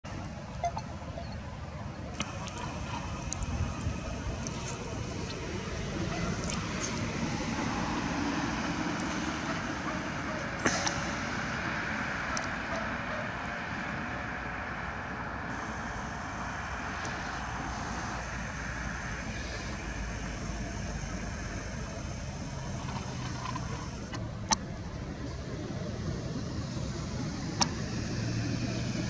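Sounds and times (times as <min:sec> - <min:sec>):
road traffic hum: 0:00.1 - 0:29.0.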